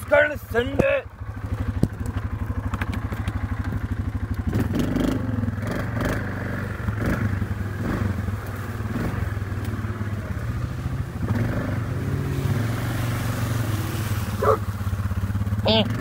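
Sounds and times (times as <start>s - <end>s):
atv engine running: 0.0s - 16.0s.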